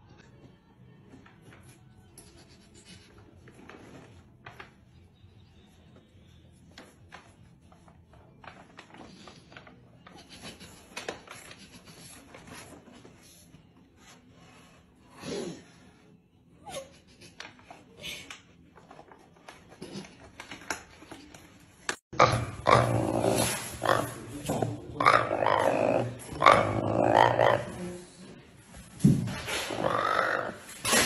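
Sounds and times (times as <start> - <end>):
low grunting animal sound: 29.6 - 30.7.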